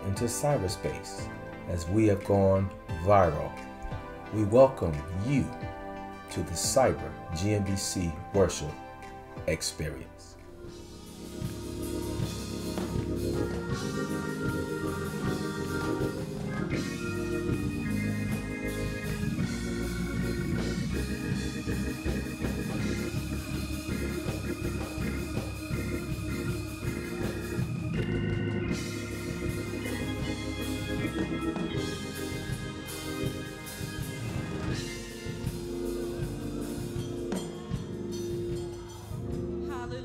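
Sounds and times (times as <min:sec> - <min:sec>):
organ chords: 0:00.0 - 0:40.0
percussion beat: 0:11.2 - 0:39.9.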